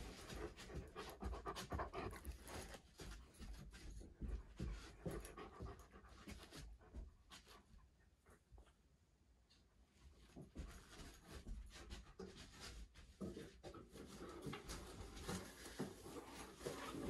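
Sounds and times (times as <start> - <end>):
dog panting and sniffing: 0.0 - 8.4.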